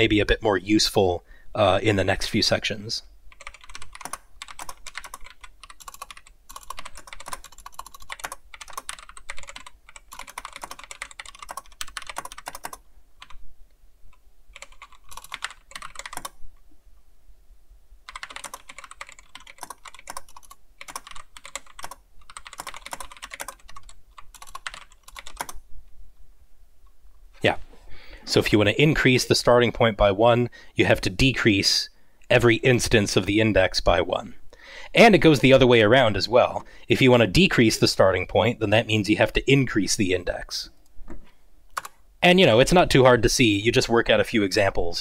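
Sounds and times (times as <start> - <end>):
rapid typing on keyboard: 3.3 - 13.4, 14.5 - 16.4, 18.1 - 25.6.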